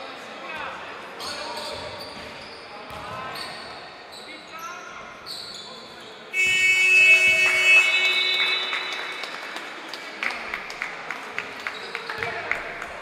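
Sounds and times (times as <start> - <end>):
taps and squeaks on court: 1.2 - 8.6, 11.6 - 12.8
loud buzzer tone: 6.4 - 9.0.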